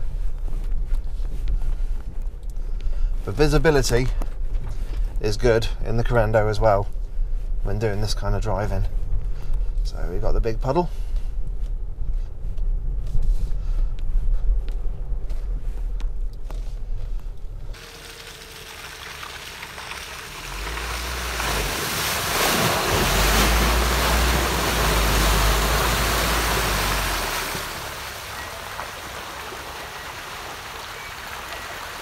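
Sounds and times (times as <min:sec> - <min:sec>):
car engine low rumble: 0:00.0 - 0:32.0
tyres splashing through puddles: 0:17.8 - 0:32.0.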